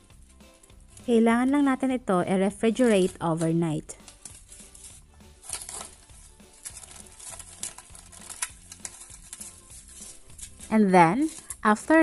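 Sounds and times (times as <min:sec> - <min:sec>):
faint background music: 0:00.0 - 0:12.0
plastic cling wrap crinkling: 0:02.5 - 0:12.0.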